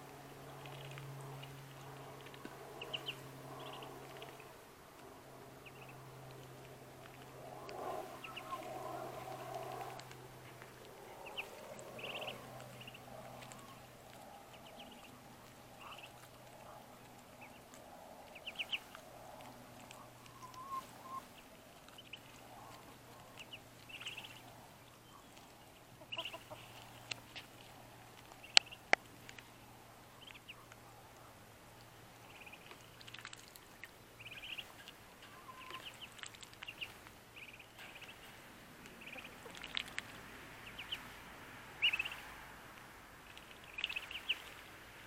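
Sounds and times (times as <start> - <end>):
ducklings peeping: 0.0 - 45.0.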